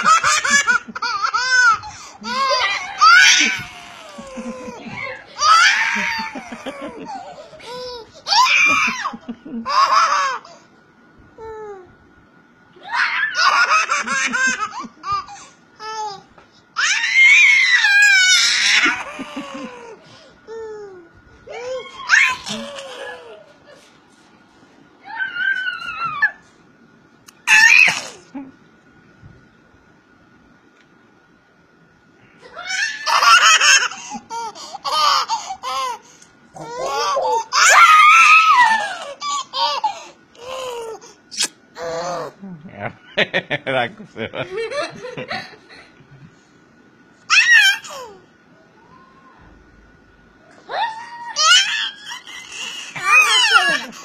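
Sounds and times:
baby laughing: 0.0s - 10.5s, 13.4s - 23.9s, 32.7s - 42.4s, 47.3s - 48.2s, 51.4s - 54.0s.

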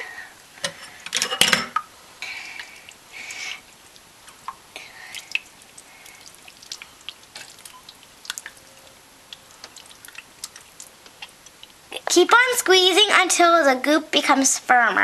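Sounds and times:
slime squelching: 2.2s - 12.9s.

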